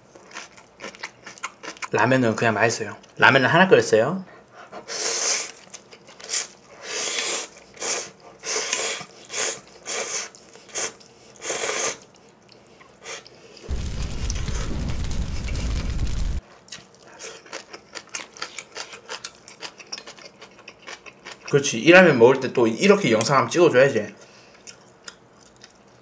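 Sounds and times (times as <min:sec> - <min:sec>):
chewing with full mouth: 0:00.1 - 0:02.0, 0:05.4 - 0:13.7, 0:16.6 - 0:21.6, 0:24.5 - 0:26.0.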